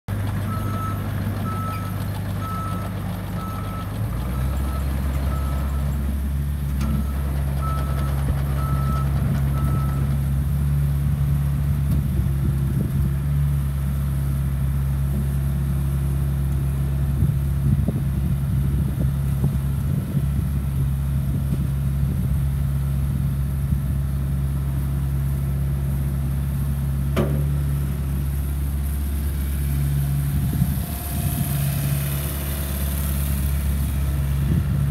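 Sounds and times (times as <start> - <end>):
excavator diesel engine running: 0.1 - 34.9
brief knock: 27.2 - 27.5.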